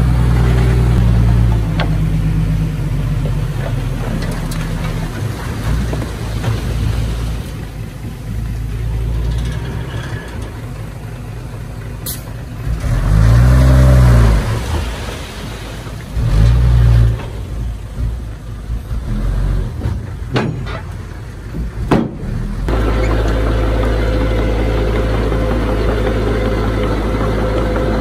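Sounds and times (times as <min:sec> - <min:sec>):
heavy diesel engines running: 0:00.0 - 0:28.0
engine revving: 0:12.6 - 0:15.1, 0:22.2 - 0:28.0.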